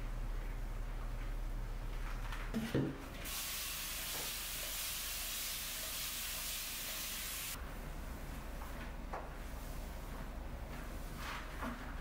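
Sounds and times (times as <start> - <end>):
spray bottle hissing: 3.3 - 7.6.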